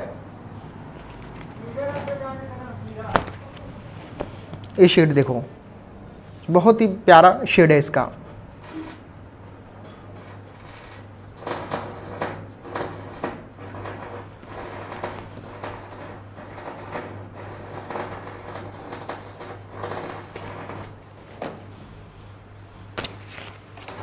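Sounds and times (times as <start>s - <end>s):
cloth rustling and flapping: 22.9s - 24.0s.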